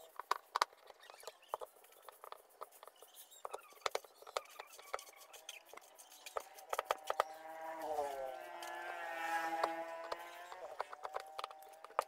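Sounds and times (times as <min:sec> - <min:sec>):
small clicks and taps on plastic: 0:09.6 - 0:12.0.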